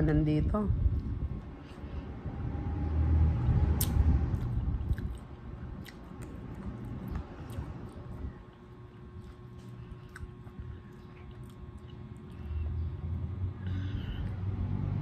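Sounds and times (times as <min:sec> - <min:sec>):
low rumble: 0:00.0 - 0:09.2
wet chewing clicks: 0:03.8 - 0:13.2.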